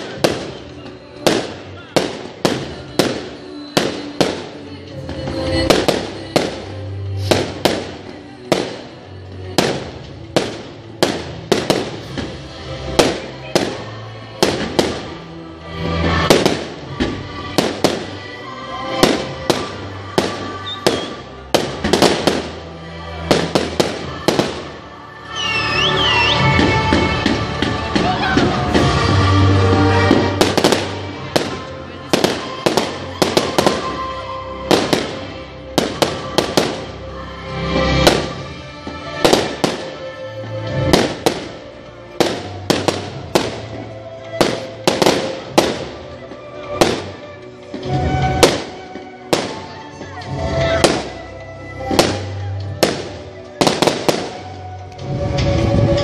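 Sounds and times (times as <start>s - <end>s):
fireworks bangs: 0.0s - 37.0s, 37.8s - 56.0s
music: 0.0s - 56.0s
rising firework whistles: 25.2s - 26.8s.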